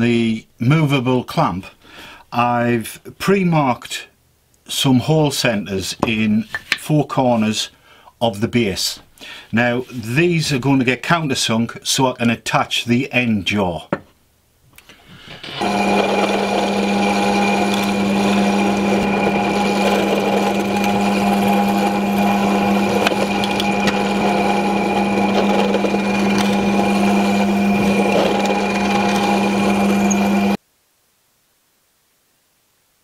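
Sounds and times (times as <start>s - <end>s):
drill press drilling wood: 15.0s - 30.6s.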